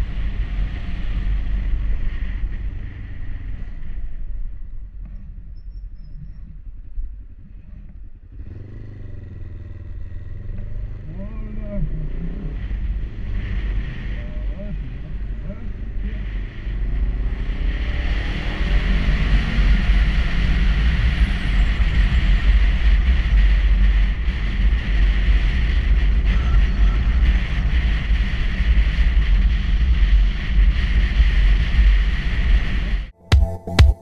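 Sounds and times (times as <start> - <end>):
motorcycle engine: 0.0 - 31.0.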